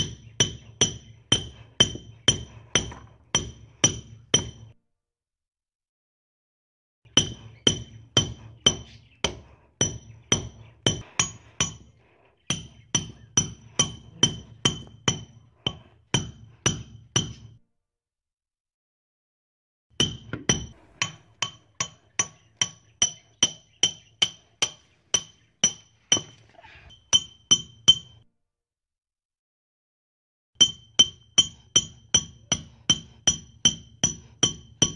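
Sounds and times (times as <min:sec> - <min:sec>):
hammer striking a nail: 0:00.0 - 0:04.8, 0:07.1 - 0:17.6, 0:20.0 - 0:26.4, 0:27.1 - 0:28.2, 0:30.6 - 0:34.9.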